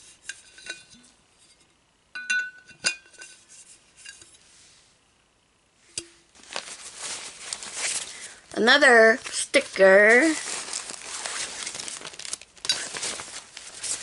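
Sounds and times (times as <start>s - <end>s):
metal cap clinking on bottle: 2.2s - 3.2s.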